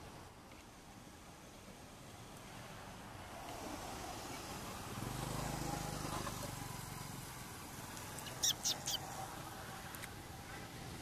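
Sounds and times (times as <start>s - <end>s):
distant vehicle engine hum: 0.0s - 11.0s
high-pitched chirps: 8.3s - 9.0s.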